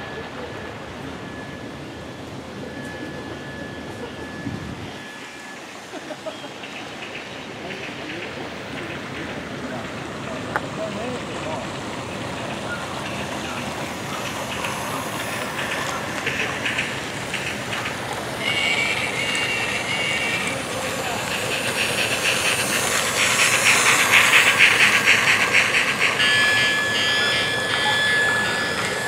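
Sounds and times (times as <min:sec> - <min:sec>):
wheels ticking over rails: 0:05.0 - 0:29.0
toy train motor humming: 0:05.1 - 0:29.0
high steady whine: 0:09.8 - 0:29.0.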